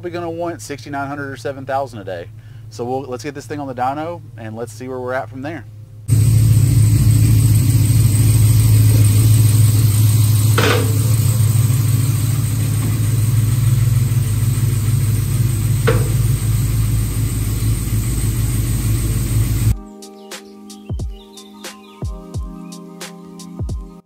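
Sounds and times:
car engine idling: 0:05.6 - 0:19.7.

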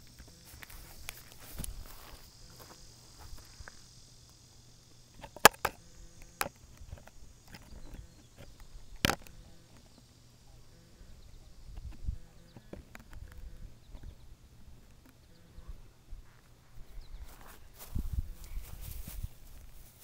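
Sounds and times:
high-pitched insect buzzing: 0:00.0 - 0:14.3, 0:16.8 - 0:20.0
sharp clicks or knocks: 0:05.2 - 0:09.4.

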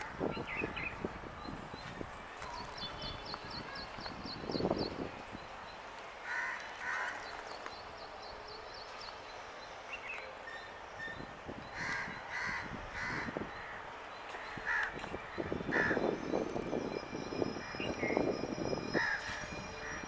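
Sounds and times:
crows cawing: 0:06.2 - 0:07.3, 0:11.8 - 0:13.8, 0:14.5 - 0:15.0, 0:15.7 - 0:16.0.

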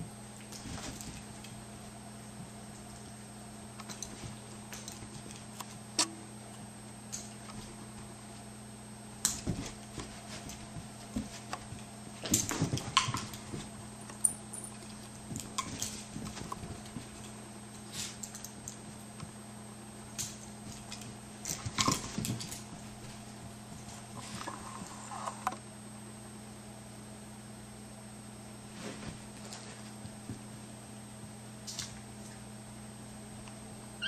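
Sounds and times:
faint steady hum: 0:00.0 - 0:34.0
paws scuffling on floor: 0:00.4 - 0:03.2, 0:03.8 - 0:05.8, 0:07.2 - 0:08.6, 0:09.2 - 0:19.3, 0:20.3 - 0:25.0, 0:28.7 - 0:30.6.

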